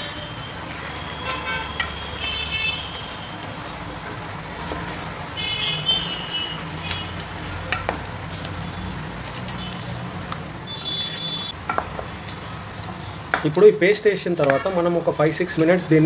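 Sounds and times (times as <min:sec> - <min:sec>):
vehicle horns tooting: 0:00.0 - 0:03.4, 0:05.4 - 0:07.2, 0:10.6 - 0:11.6
spatula stirring curry in pot: 0:00.0 - 0:09.5.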